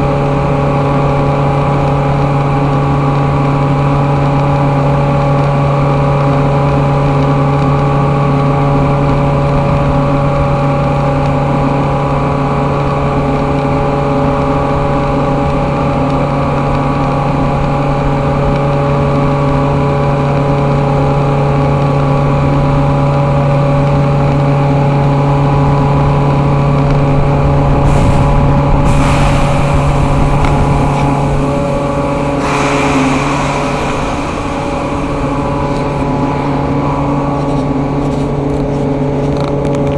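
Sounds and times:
industrial machinery humming: 0.0s - 39.9s
brief rushing noises: 27.9s - 39.2s.

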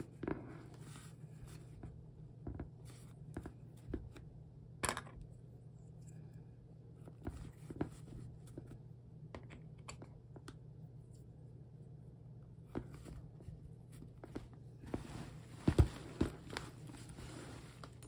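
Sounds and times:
steady low hum: 0.0s - 18.0s
vinyl bag rustling: 14.0s - 18.0s.

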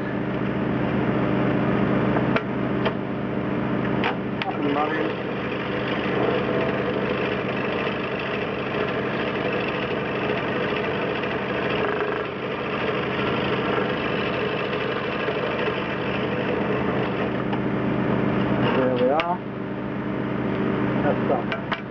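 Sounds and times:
scroll saw running: 4.5s - 17.5s.

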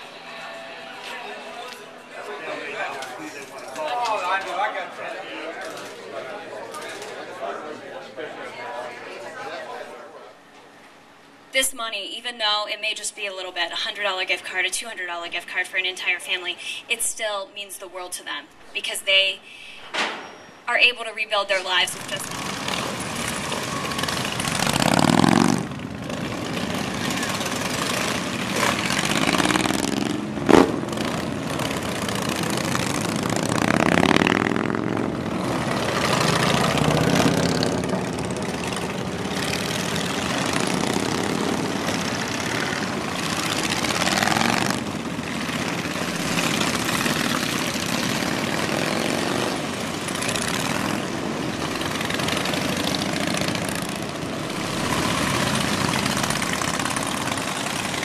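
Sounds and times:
motorcycles accelerating past: 22.0s - 58.0s.

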